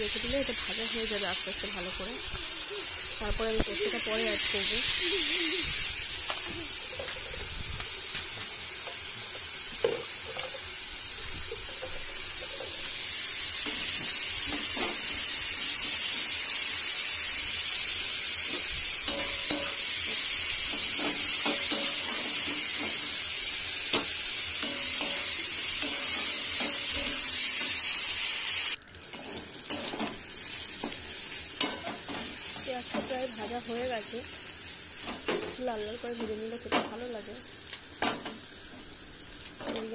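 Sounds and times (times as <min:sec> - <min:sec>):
onions sizzling in oil: 0:00.0 - 0:39.9
spatula scraping and tapping pan: 0:18.5 - 0:23.1, 0:23.9 - 0:27.8, 0:31.6 - 0:33.1.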